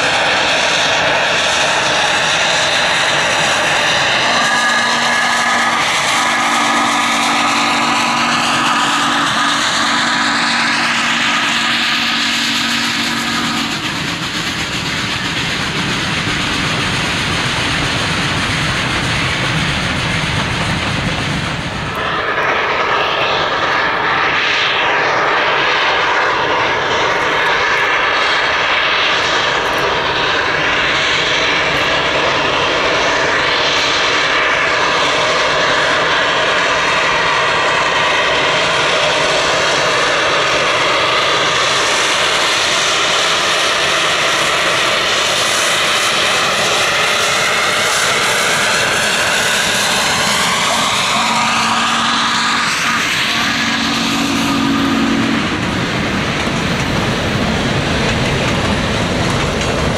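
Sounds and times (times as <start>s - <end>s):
steam locomotive exhaust: 0.0s - 59.9s
train rolling: 0.0s - 59.9s
steady tone: 48.6s - 59.9s.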